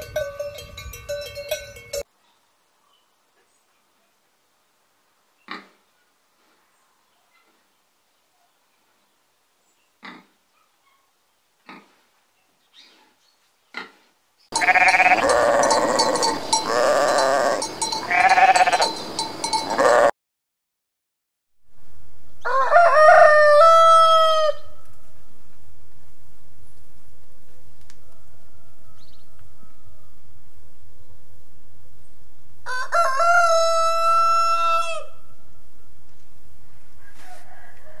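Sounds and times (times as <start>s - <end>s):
sheep bleating: 14.5s - 18.9s, 19.7s - 20.1s
rooster crowing: 14.6s - 19.0s, 19.7s - 20.1s, 22.4s - 24.9s, 27.8s - 30.6s, 32.6s - 35.6s, 36.7s - 38.0s.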